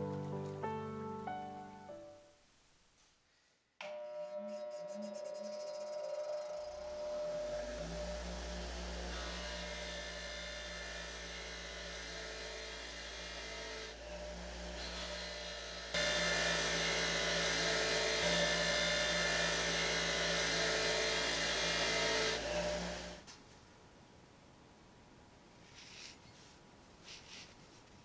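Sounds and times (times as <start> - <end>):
bench grinder motor humming: 5.7 - 23.2.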